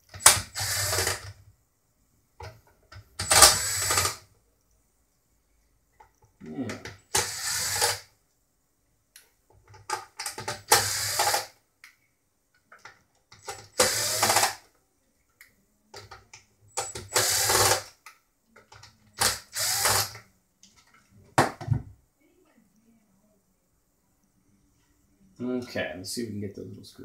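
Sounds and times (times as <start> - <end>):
cordless drill running: 0.2 - 1.3, 3.2 - 4.2, 7.1 - 8.1, 10.7 - 11.5, 13.7 - 14.6, 16.8 - 17.9, 19.2 - 20.2.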